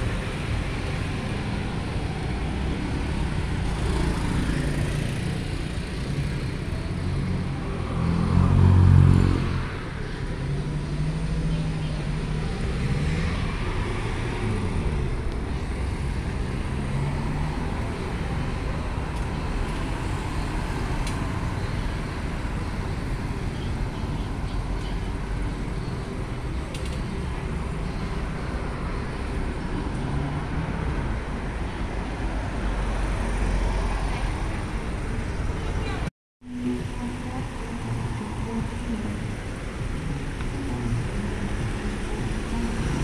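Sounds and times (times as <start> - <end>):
cars and motorbikes passing: 0.0 - 43.0.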